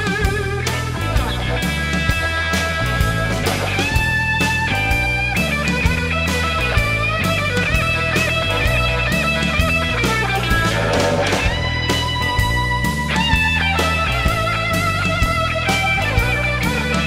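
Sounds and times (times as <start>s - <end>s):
bass: 0.0s - 17.0s
drum kit: 0.0s - 17.0s
electric guitar bending notes: 6.8s - 17.0s.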